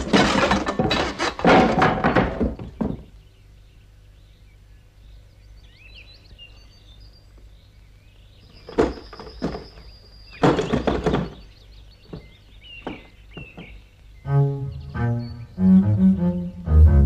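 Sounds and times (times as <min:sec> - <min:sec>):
wooden wheel knocking and clattering: 0:00.0 - 0:03.1, 0:08.6 - 0:13.8
faint bird chirps: 0:02.7 - 0:16.7.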